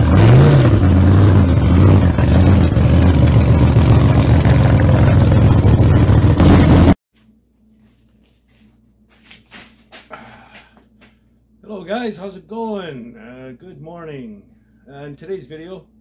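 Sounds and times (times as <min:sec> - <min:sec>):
engine running and revving: 0:00.0 - 0:07.0.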